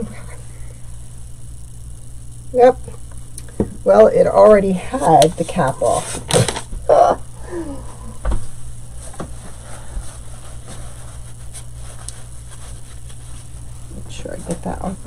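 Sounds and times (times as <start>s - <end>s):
steady low hum: 0.0s - 15.0s
paper towel rustling: 4.4s - 6.8s, 8.4s - 15.0s.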